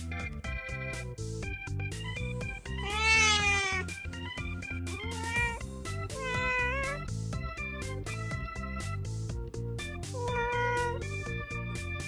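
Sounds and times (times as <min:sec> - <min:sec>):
cat meowing: 0:02.7 - 0:04.0, 0:04.8 - 0:07.1, 0:10.1 - 0:11.3.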